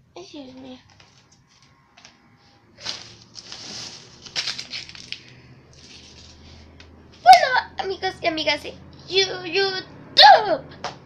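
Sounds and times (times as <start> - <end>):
rustling and crunching: 2.8 - 6.7.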